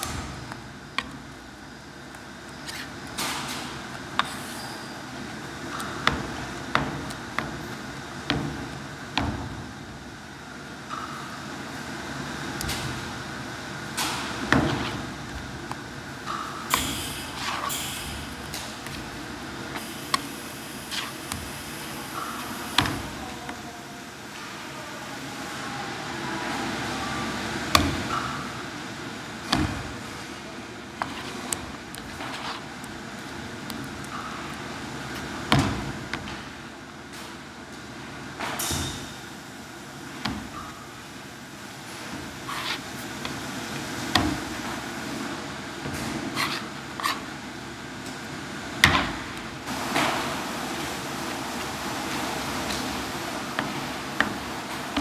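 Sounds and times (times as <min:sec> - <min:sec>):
steady background hum: 0:00.0 - 0:55.0
knife scraping paste on board: 0:31.0 - 0:31.6, 0:42.5 - 0:42.8, 0:46.3 - 0:47.3.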